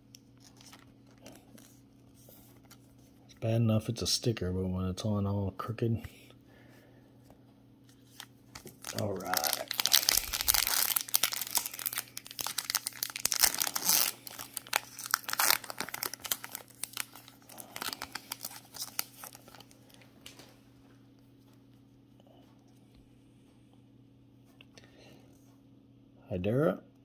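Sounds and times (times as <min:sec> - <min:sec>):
foil wrapper tearing and crinkling: 0:08.1 - 0:20.0.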